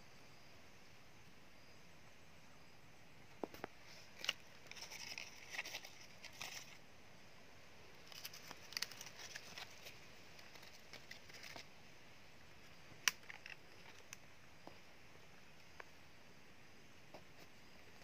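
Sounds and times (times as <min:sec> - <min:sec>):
dry leaves rustling: 0:04.0 - 0:06.8, 0:08.0 - 0:11.7.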